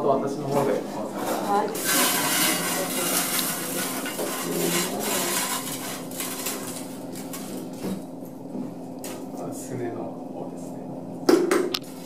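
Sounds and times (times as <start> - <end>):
bone scraping on steel tray: 0.9 - 7.5.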